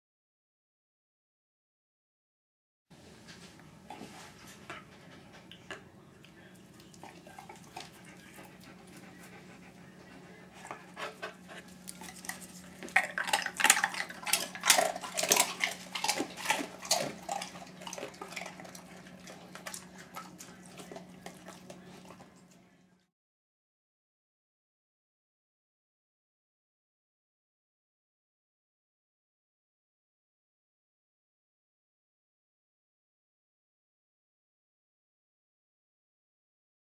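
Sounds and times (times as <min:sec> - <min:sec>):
faint low hum: 0:03.0 - 0:23.1
dog crunching hard treat: 0:10.7 - 0:22.3.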